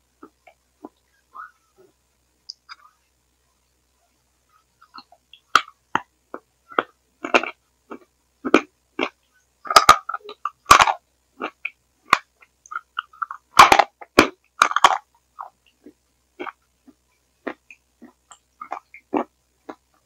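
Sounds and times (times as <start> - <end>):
crackly gurgle: 4.8 - 20.0
wet mouth eating sounds: 6.3 - 13.4, 14.2 - 19.9.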